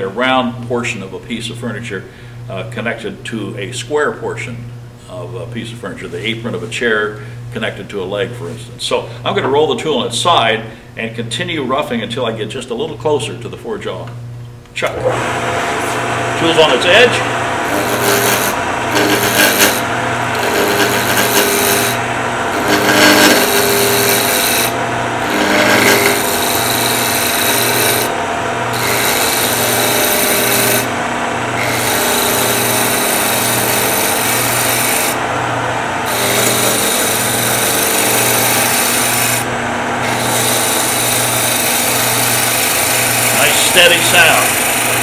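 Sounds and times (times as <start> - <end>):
lathe humming: 14.8 - 45.0
gouge hissing on spinning wood: 17.1 - 28.1, 28.7 - 30.9, 31.6 - 35.2, 36.1 - 39.4, 40.0 - 45.0.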